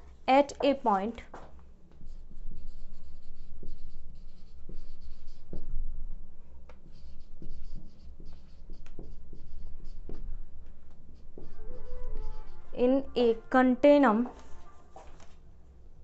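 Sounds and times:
marker squeaking on whiteboard: 2.1s - 5.7s, 6.7s - 13.4s.

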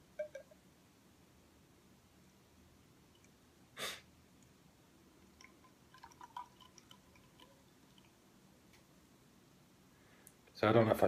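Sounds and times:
person sniffing: 3.8s - 4.1s.

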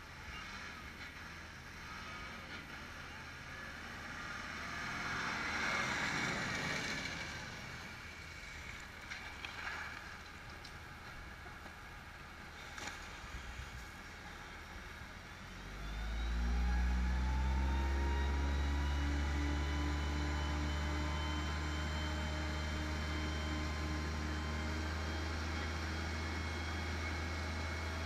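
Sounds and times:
fire engine pump engine droning: 10.2s - 28.0s.

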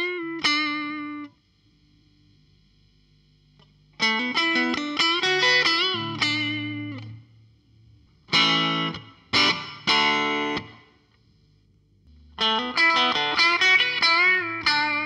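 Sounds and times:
electric guitar strums: 8.3s - 10.9s, 12.1s - 15.0s
electric guitar single notes: 12.1s - 15.0s.

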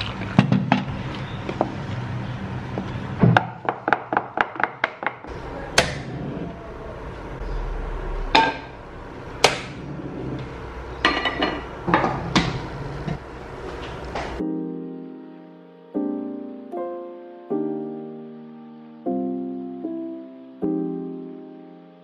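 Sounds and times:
frying pan and bowl clanking: 11.0s - 13.3s.

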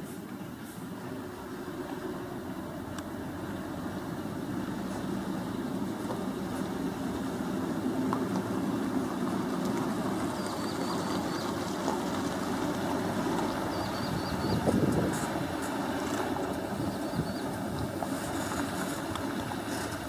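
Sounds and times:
dump truck engines rumbling: 0.0s - 20.0s.

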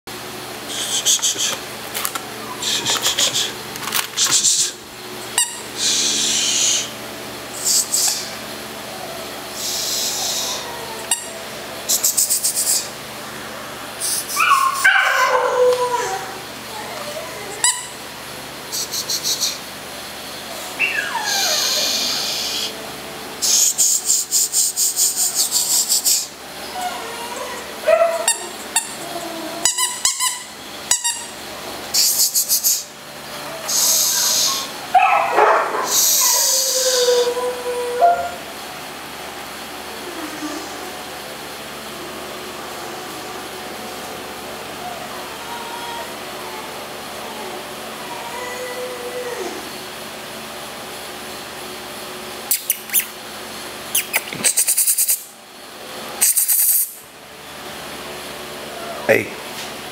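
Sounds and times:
person shushing: 0.7s - 1.7s, 2.4s - 3.6s, 5.8s - 7.0s, 7.6s - 8.4s, 9.6s - 10.9s, 11.9s - 13.0s, 18.7s - 19.6s, 21.2s - 22.8s
puppy whining: 2.2s - 3.6s, 7.6s - 18.1s, 20.3s - 22.8s, 23.4s - 31.4s, 32.0s - 38.5s, 39.8s - 50.0s, 53.9s - 55.4s, 58.6s - 59.2s.

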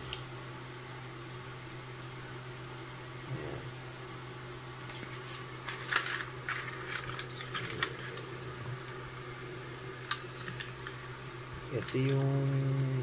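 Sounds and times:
steady low hum: 0.0s - 13.0s
paper rustling: 4.9s - 8.3s.

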